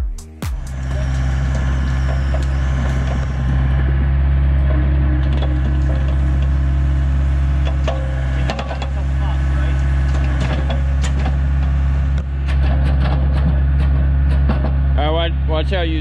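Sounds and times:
excavator diesel engine running: 0.4s - 16.0s
rocks knocking: 10.2s - 15.0s.

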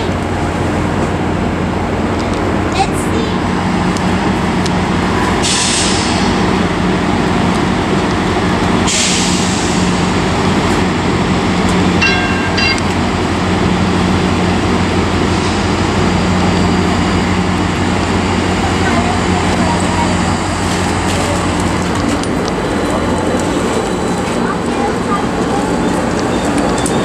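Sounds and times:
train rumble and hum: 0.0s - 27.0s
multi-tone ringing: 12.0s - 13.2s.

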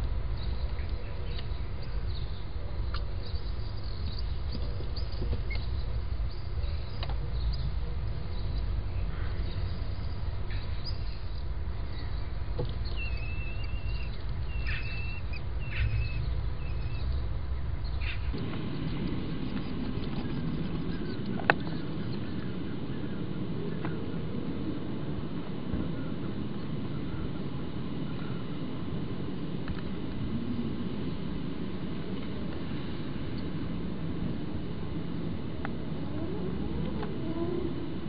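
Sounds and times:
steady low rumble: 0.0s - 38.0s
rushing noise: 14.8s - 38.0s.

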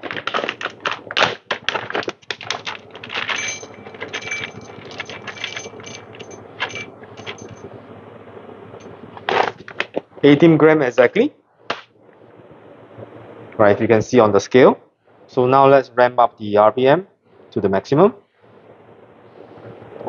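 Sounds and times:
coffee bag crinkling: 0.0s - 7.6s
coffee beans rattling: 0.0s - 7.6s.

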